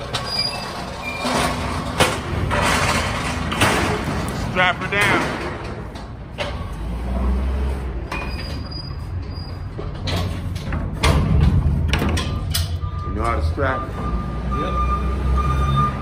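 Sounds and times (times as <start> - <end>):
pallet jack rattling on metal floor: 0.0 - 6.0.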